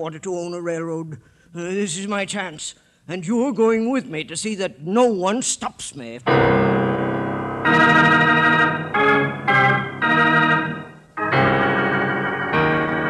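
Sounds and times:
sustained organ chords: 6.3s - 13.0s.

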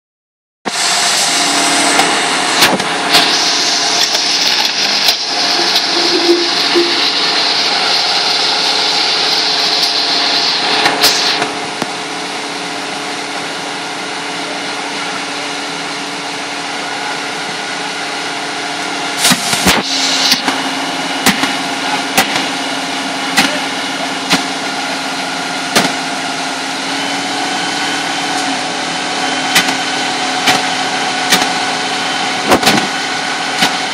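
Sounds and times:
strong hiss: 0.7s - 11.6s, 19.2s - 20.8s
diesel engine and pump droning: 0.7s - 33.9s.

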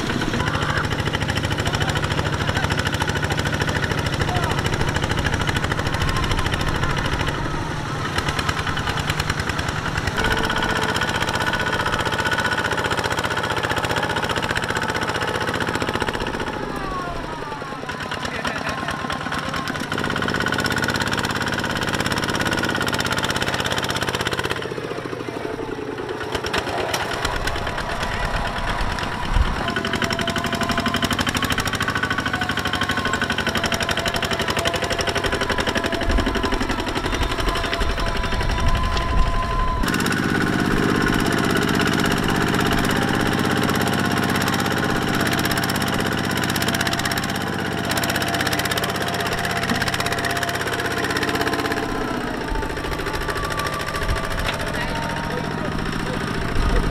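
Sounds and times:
diesel engine chugging: 0.0s - 56.9s.

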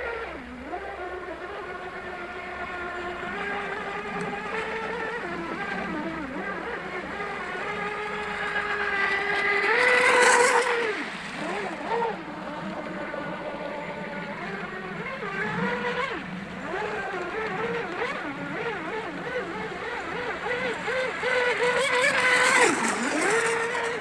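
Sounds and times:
electric boat motor whining: 0.0s - 24.0s.

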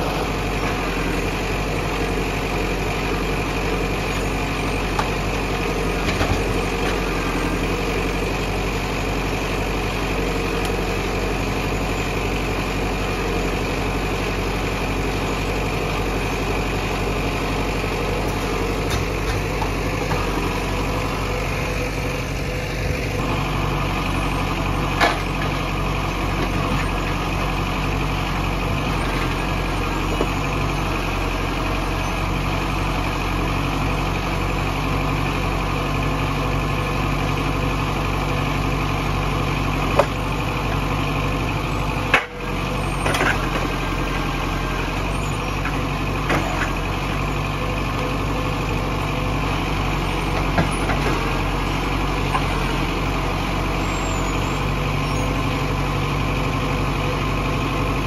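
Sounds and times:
tractor diesel engine running: 0.0s - 58.0s
grapple knocking logs: 39.9s - 40.3s.

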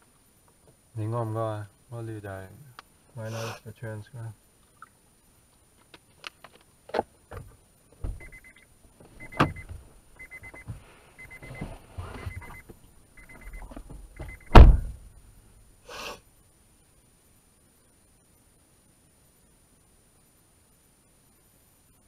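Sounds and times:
knocks and rattles in car cabin: 7.3s - 8.4s, 9.1s - 10.8s, 13.4s - 15.0s
loud thump: 7.4s - 8.3s, 13.9s - 15.1s.

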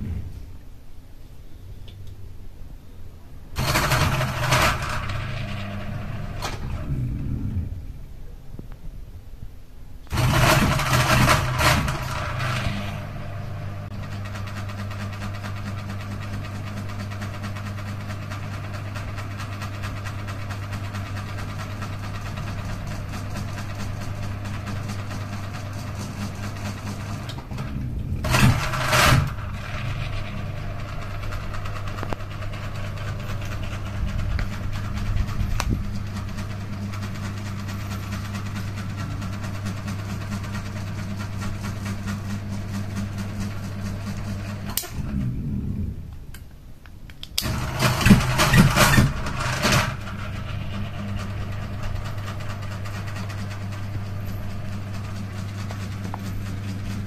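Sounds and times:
ceiling fan motor hum: 0.0s - 57.0s
loud bursts of noise: 3.5s - 8.1s, 10.1s - 15.8s, 27.0s - 39.5s, 47.4s - 55.2s.

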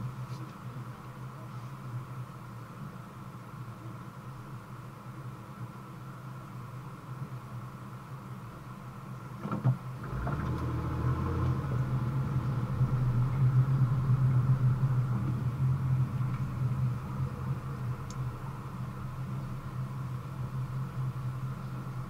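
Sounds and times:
car engine and road noise: 0.0s - 22.0s.

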